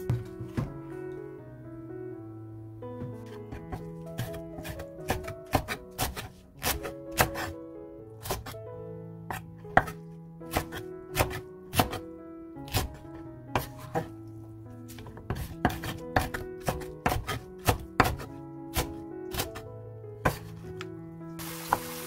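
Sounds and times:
background music: 0.0 - 22.0
knife chopping on wooden board: 3.0 - 7.5, 9.3 - 12.0, 12.7 - 12.9, 14.9 - 19.6, 20.2 - 20.5.

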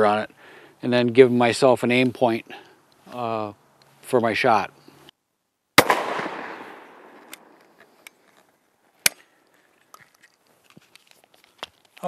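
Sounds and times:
shotgun blast with echo: 5.8 - 7.2
gun opening click: 7.1 - 8.4.

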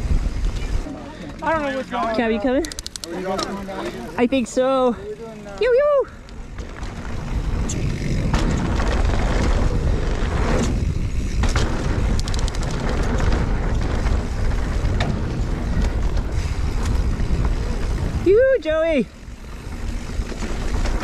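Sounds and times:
bike clicks and rattles: 0.0 - 21.0
wind buffeting microphone: 5.7 - 21.0.

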